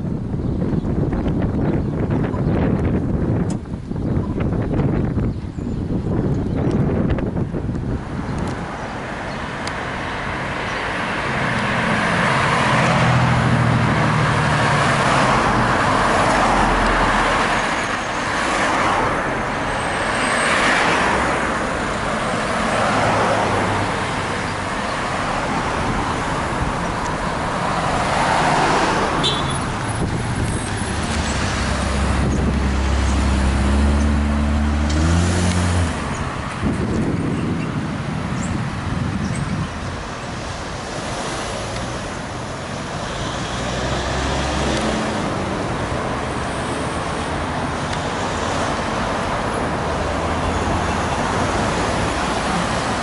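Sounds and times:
cars driving past: 0:06.9 - 0:53.0
heavy vehicle engine pulling away: 0:19.7 - 0:37.9, 0:41.2 - 0:47.5.

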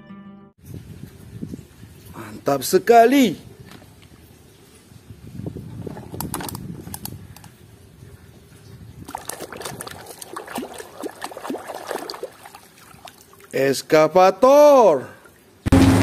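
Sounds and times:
water sloshing in basin: 0:08.7 - 0:13.6.

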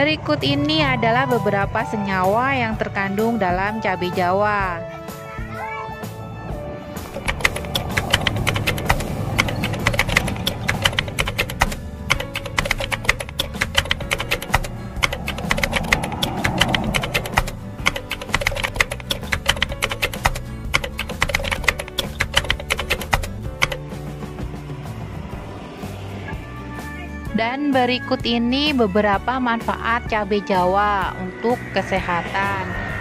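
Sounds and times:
background music: 0:00.0 - 0:33.0
keyboard typing clicks: 0:07.1 - 0:23.8.

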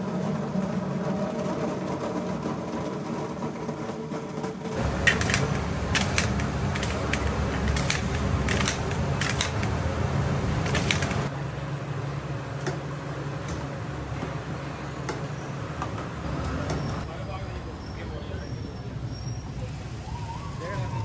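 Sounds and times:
fry cutter clacking: 0:04.8 - 0:11.3.

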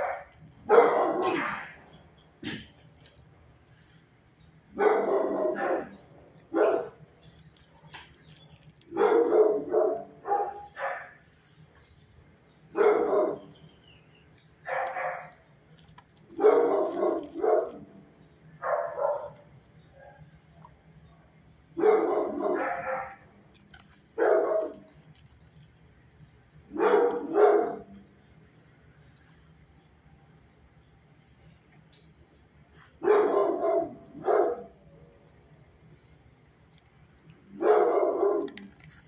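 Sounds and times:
dogs barking: 0:00.0 - 0:02.7, 0:04.7 - 0:07.2, 0:08.8 - 0:11.4, 0:12.6 - 0:15.5, 0:16.2 - 0:20.6, 0:21.7 - 0:25.1, 0:26.7 - 0:28.1, 0:32.8 - 0:35.0, 0:37.3 - 0:38.9.

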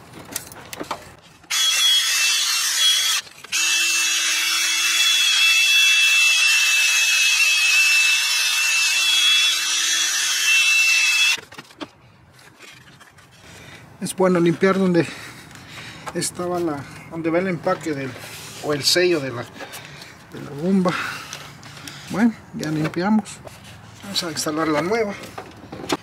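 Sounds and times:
drill spinning wire brush on metal: 0:01.5 - 0:11.4.

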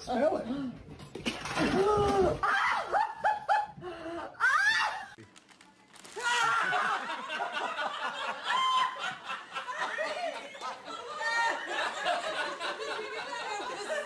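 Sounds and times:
people laughing: 0:02.6 - 0:03.8, 0:06.4 - 0:14.0.

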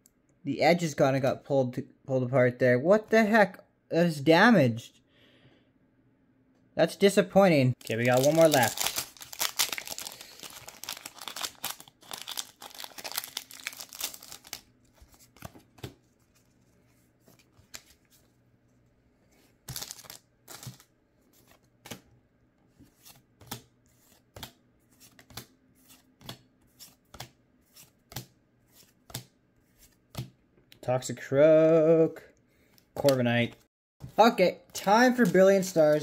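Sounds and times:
foil wrapper crinkling and tearing: 0:07.8 - 0:15.3, 0:19.7 - 0:20.9.

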